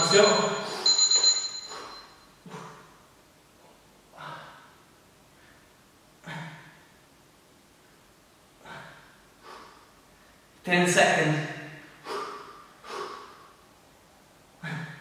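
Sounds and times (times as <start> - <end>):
man exhaling forcefully: 4.1 - 4.8, 8.6 - 9.9, 11.9 - 13.6, 14.6 - 15.0.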